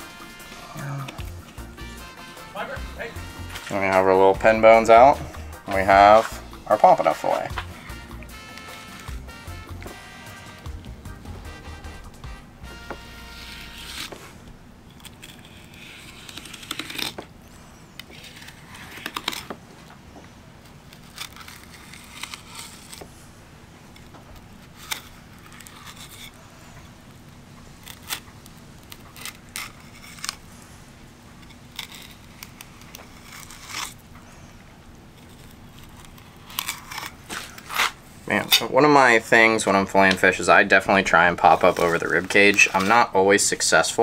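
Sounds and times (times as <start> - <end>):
knife scraping bones and board: 12.7 - 17.3, 18.0 - 19.6, 20.9 - 23.1, 23.9 - 26.4, 27.8 - 30.4, 31.4 - 34.0, 35.2 - 38.7, 39.4 - 43.1
knife slicing fish: 12.8 - 14.3, 15.0 - 17.2.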